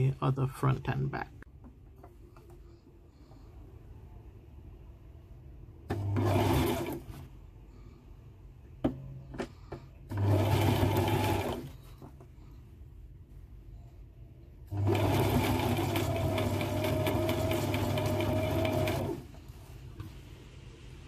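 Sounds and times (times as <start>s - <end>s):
sewing machine stitching: 5.9s - 7.3s, 10.1s - 11.9s, 14.7s - 19.4s.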